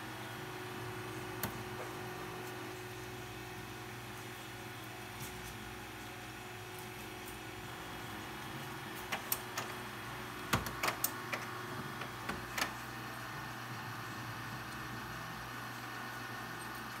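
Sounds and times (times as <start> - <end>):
printer motor hum: 0.0 - 17.0
printer mechanism clicks and clacks: 9.0 - 9.8, 10.4 - 12.8.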